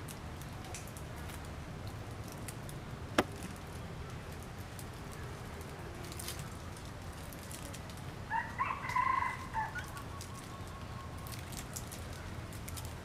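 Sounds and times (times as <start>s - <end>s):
rooster crowing: 8.3s - 9.9s.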